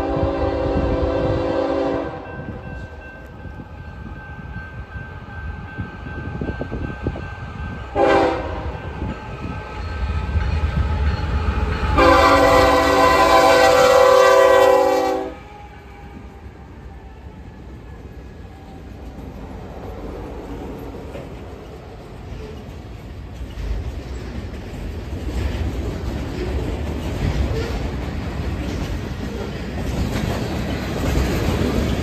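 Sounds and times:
locomotive air horn blasts: 0.0s - 2.3s, 7.9s - 8.8s, 12.0s - 16.2s
diesel locomotive rumble: 6.0s - 32.0s.

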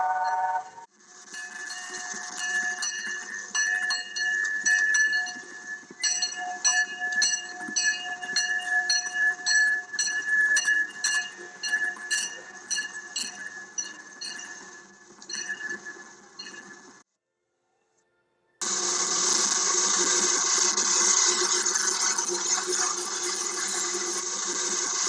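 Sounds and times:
steam locomotive bell ringing: 0.0s - 17.0s.

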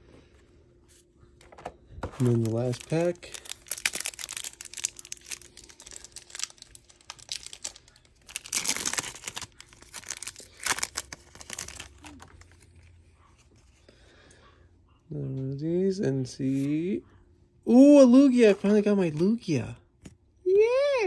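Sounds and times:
foil wrapper tearing and crinkling: 2.2s - 12.6s.

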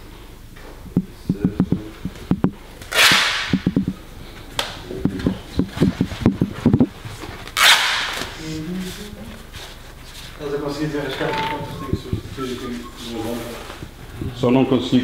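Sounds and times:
soft low thumps and knocks: 0.8s - 2.6s, 3.5s - 4.0s, 5.0s - 7.0s
paper strips rustling: 5.2s - 13.9s.

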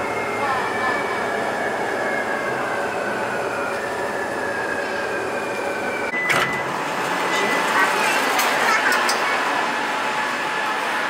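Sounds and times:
train motor whine: 0.0s - 11.0s.

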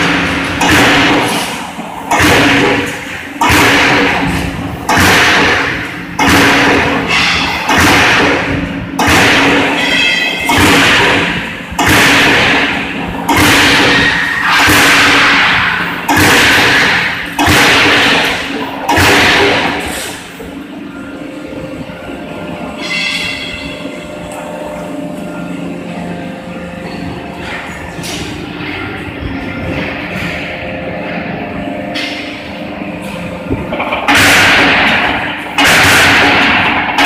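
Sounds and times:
punching machine bangs: 0.0s - 20.3s, 31.9s - 37.0s
steady machine hum: 0.0s - 37.0s.

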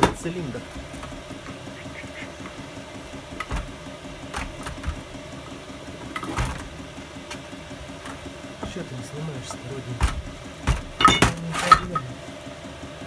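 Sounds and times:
steady mechanical hum: 0.0s - 13.0s
metal knocks on workbench: 10.0s - 12.1s.

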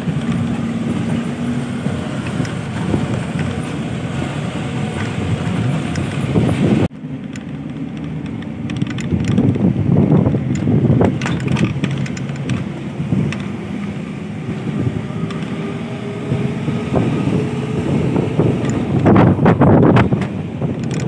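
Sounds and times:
bus engine and road rumble: 0.0s - 21.0s
wind buffeting microphone: 0.0s - 21.0s
knocks and rattles: 7.2s - 13.5s, 18.4s - 21.0s.

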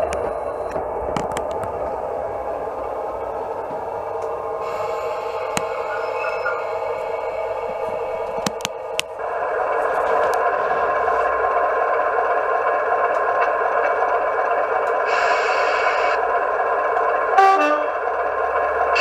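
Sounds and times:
diesel engine idling: 0.0s - 19.0s
two-tone horn: 17.4s - 18.0s.

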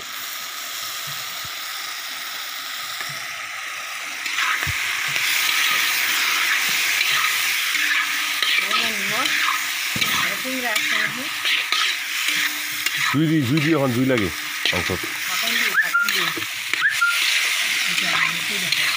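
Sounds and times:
meat sizzling in a wok: 0.0s - 18.9s
metal spatula scraping: 4.2s - 18.9s.

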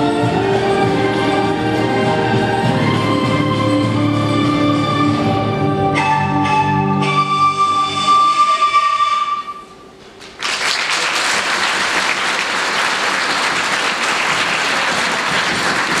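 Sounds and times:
audience applause: 10.2s - 16.0s.

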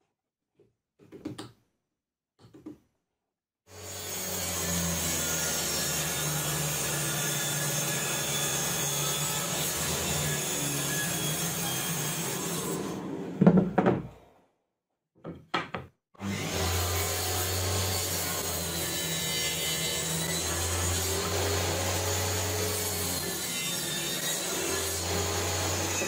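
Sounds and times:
table saw cutting plywood: 3.7s - 14.1s, 16.2s - 26.0s.

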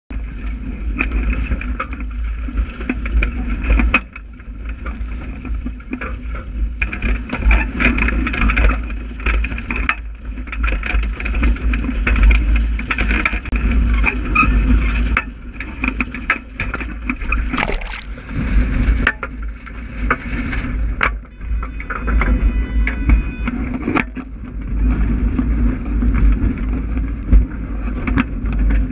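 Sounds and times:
water washing against hull: 17.6s - 18.4s.

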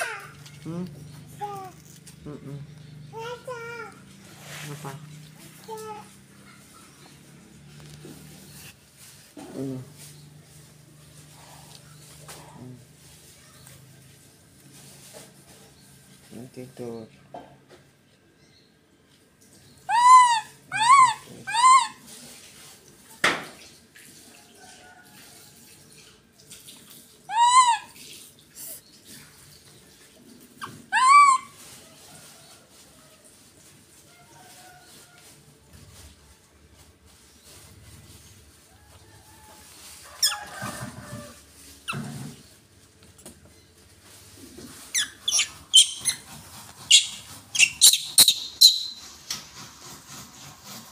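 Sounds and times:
monkey calling: 19.9s - 22.0s, 27.3s - 28.0s, 30.6s - 31.5s, 44.9s - 49.1s.

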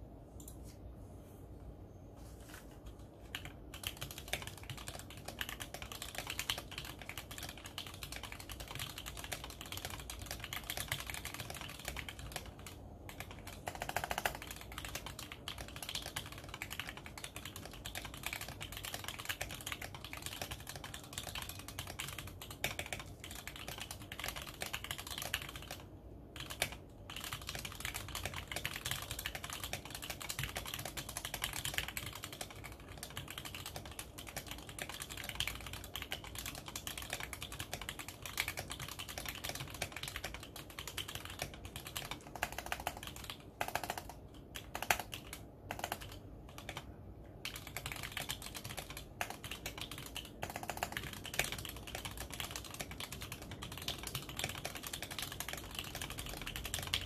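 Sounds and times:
fast mechanical keyboard typing: 2.8s - 57.0s.

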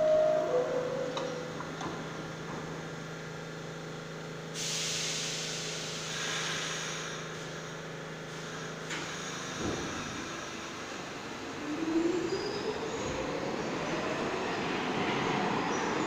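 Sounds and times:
brakes hissing air: 4.5s - 11.0s.

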